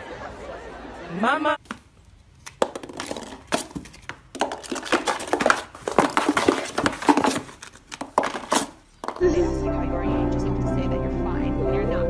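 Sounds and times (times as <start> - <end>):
cat claws scratching cardboard: 2.4 - 8.8.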